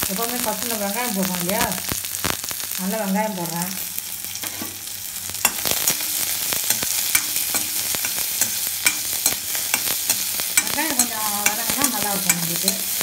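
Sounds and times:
onions sizzling in hot oil: 0.0 - 13.0
spoon scraping a wok: 4.4 - 13.0.

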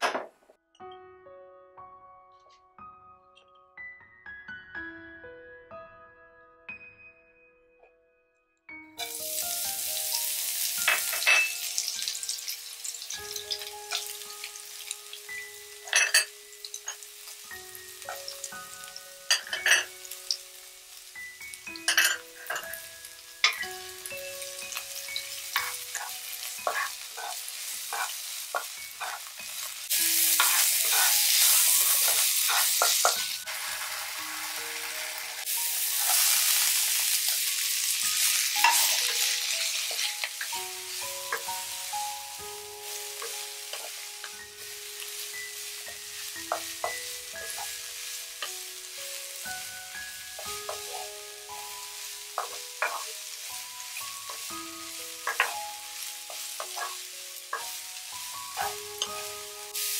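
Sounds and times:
oil sizzling in a wok: 9.0 - 59.9
wooden spatula scraping a pan: 25.5 - 29.3, 30.3 - 33.3, 52.3 - 53.4.

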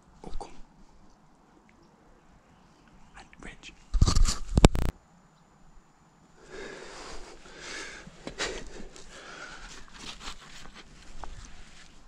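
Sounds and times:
person breathing heavily: 6.4 - 9.9.

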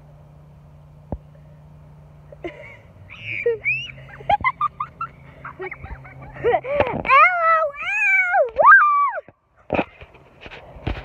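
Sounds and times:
low steady hum: 0.0 - 11.0
children squealing: 3.0 - 4.2.

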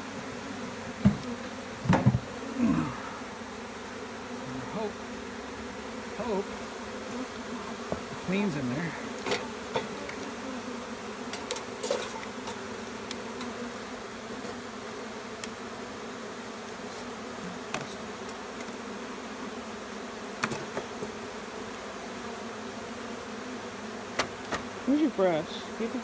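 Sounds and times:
bee swarm buzzing: 0.0 - 26.0.

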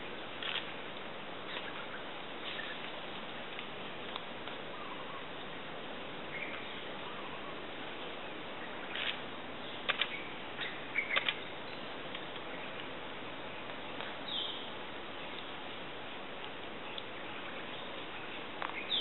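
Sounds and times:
steady background hiss: 0.0 - 19.0
small birds chirping and clicking: 1.5 - 4.6, 8.9 - 13.0, 16.4 - 17.2, 17.8 - 19.0.

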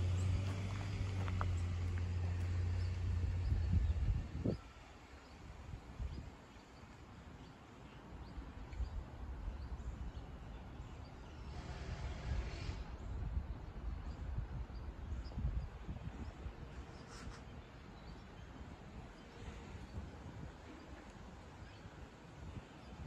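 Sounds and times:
low rumble: 0.0 - 4.6.

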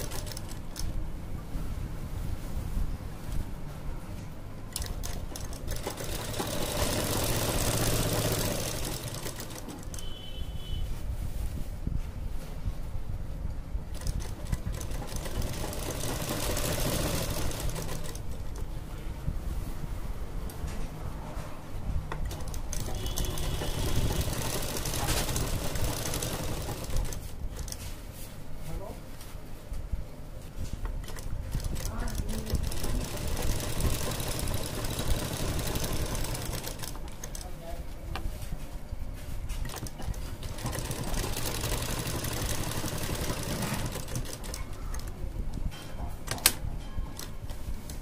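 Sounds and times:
sewing machine running: 0.0 - 0.9, 4.7 - 10.1, 13.9 - 18.6, 22.2 - 27.8, 31.0 - 37.5, 39.6 - 45.1
sewing machine clicks: 0.0 - 1.0, 4.7 - 10.1, 13.9 - 18.7, 22.1 - 27.9, 30.8 - 37.5, 39.6 - 45.2, 46.3 - 46.6.

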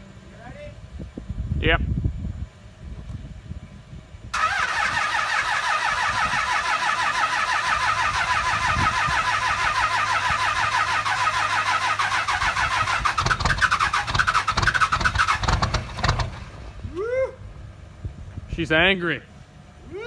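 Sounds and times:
diesel engine starter cranking: 4.3 - 16.8
diesel engine firing unevenly: 4.3 - 20.0.

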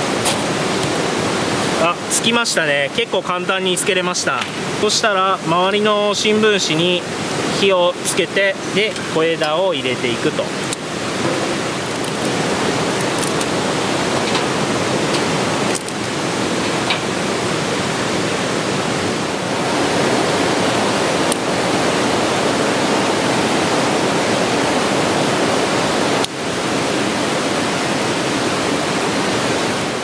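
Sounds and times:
stream water rushing: 0.0 - 30.0
twigs crackling in fire: 10.5 - 14.5, 15.1 - 16.2.

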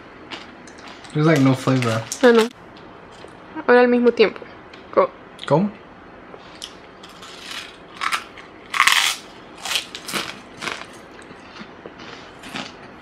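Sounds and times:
crunchy chip chewing: 7.0 - 12.9.

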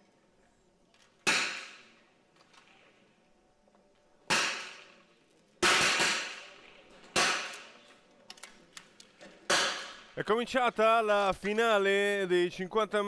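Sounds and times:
rifle shots with echo: 1.2 - 2.0, 4.3 - 5.0, 5.6 - 7.8.

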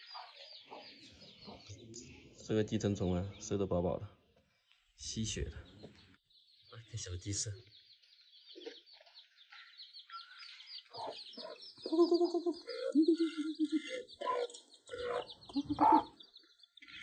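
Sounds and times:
hen clucking: 0.0 - 1.8, 10.9 - 17.0
chicks cheeping: 0.0 - 3.6, 5.1 - 17.0.

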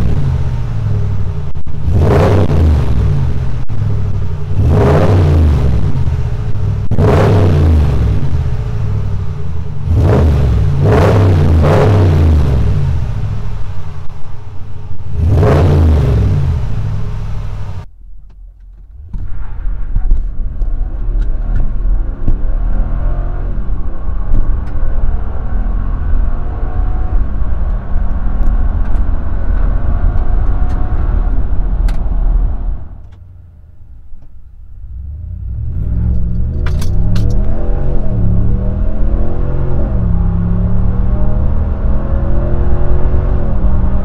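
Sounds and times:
truck engine accelerating: 0.0 - 17.9, 18.6 - 44.0
truck exhaust revving: 0.0 - 17.9, 34.7 - 44.0.

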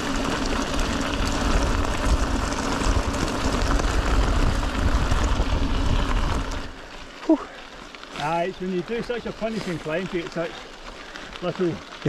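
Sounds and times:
wind rumble on microphone: 0.0 - 6.7
bike tyres crunching over gravel: 0.0 - 12.0.

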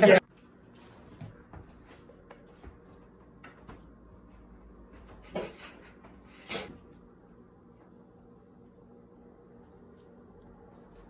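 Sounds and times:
man stifling laughter: 5.2 - 6.8.

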